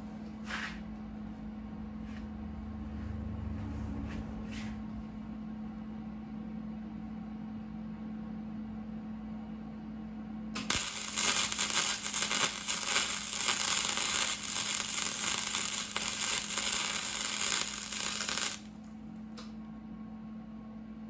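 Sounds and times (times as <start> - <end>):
arc welding crackling: 10.6 - 18.8.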